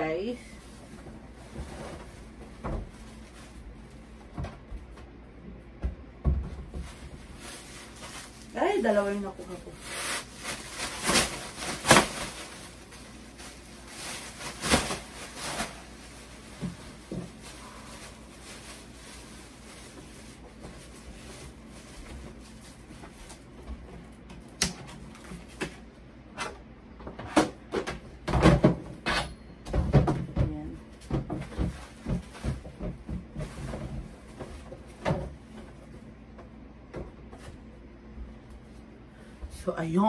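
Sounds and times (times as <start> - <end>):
trash bin and cabinet clattering: 27.1 - 35.8.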